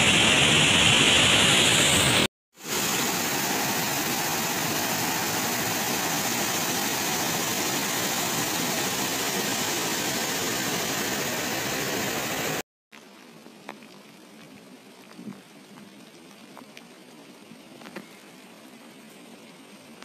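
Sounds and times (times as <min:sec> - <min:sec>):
water rushing over spillway: 0:00.0 - 0:12.6.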